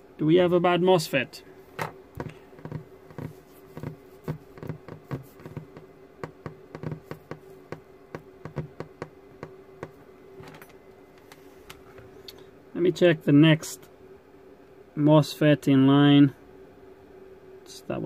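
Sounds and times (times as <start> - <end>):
low electrical buzz: 0.0 - 18.0
fingers tapping on wood: 2.2 - 10.0.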